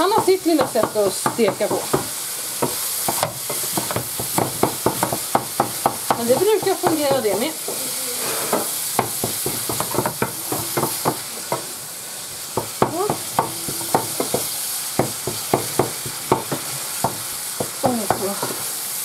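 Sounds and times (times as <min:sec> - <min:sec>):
meat sizzling in a pan: 0:00.0 - 0:19.0
utensil scraping a pan: 0:00.2 - 0:11.7.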